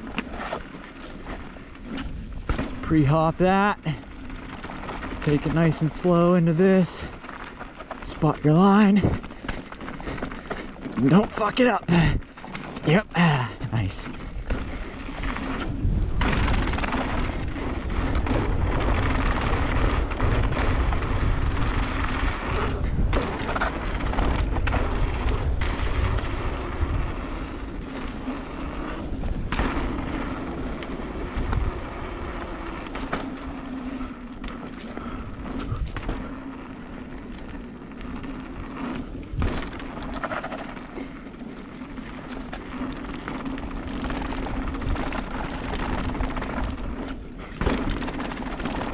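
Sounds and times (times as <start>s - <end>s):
bike knocking and rattling: 0.0s - 48.9s
bike tyres on loose dirt: 0.0s - 48.9s
wind buffeting microphone: 13.6s - 40.3s.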